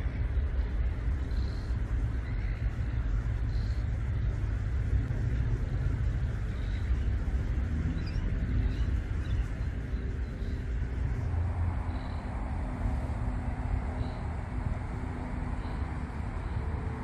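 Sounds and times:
low outdoor rumble: 0.0s - 17.0s
faint bird chirps: 1.2s - 4.4s, 6.3s - 13.1s, 13.8s - 14.4s, 15.4s - 16.7s.

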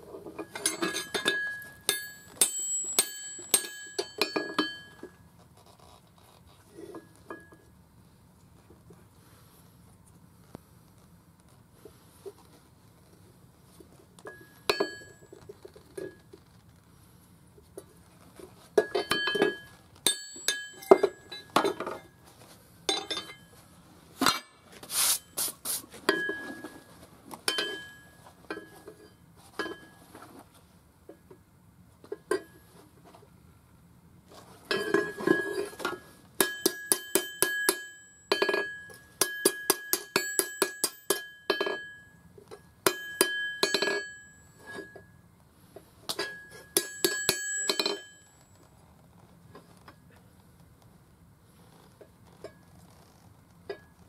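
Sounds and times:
hammer striking steel on anvil: 0.5s - 5.2s, 14.3s - 15.2s, 18.8s - 22.0s, 36.4s - 45.1s, 46.1s - 48.4s.

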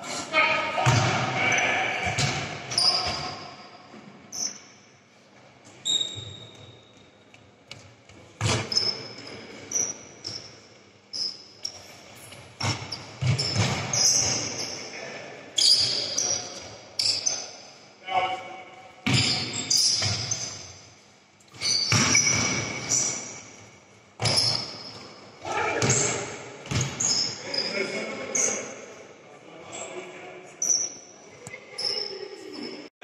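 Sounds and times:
basketball bouncing: 0.8s - 1.2s, 2.0s - 3.3s, 12.6s - 14.5s, 19.0s - 20.5s, 21.8s - 23.1s, 24.2s - 25.2s, 25.8s - 27.1s
sneaker squeaks on court: 0.8s - 4.9s, 5.8s - 7.1s, 8.4s - 14.9s, 15.6s - 17.6s, 19.0s - 20.9s, 21.5s - 23.6s, 24.2s - 28.7s, 30.6s - 31.1s.

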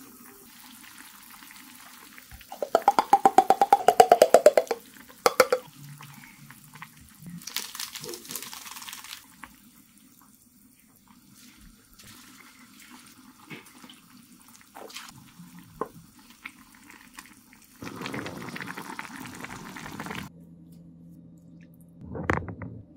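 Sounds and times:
sauce pouring into soup: 7.4s - 9.6s, 16.1s - 20.3s.

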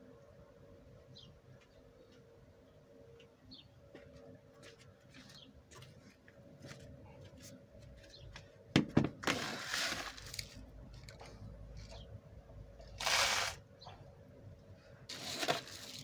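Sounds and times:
soil grains pouring: 13.0s - 13.6s, 15.1s - 16.0s.

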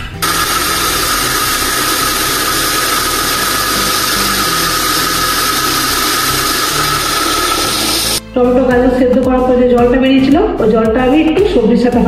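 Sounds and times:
mixer grinder running: 0.0s - 8.2s.

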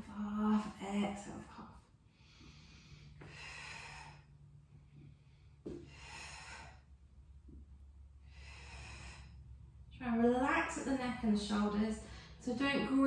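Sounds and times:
woman breathing slowly: 1.7s - 9.9s, 12.0s - 12.5s.

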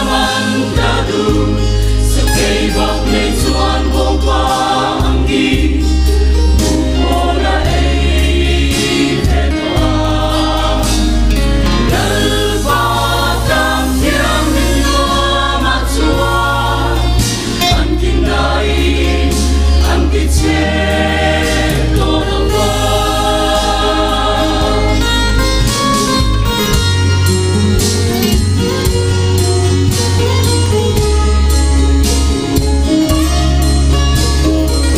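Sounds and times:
mixed choir singing a hymn: 0.0s - 26.3s
deep sustained bass notes: 0.0s - 34.9s.

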